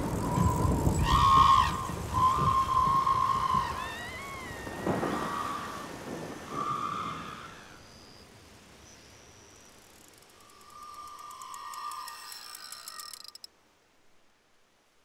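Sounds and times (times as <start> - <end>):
long whistle-like tones: 0.0 - 8.3, 10.2 - 13.4.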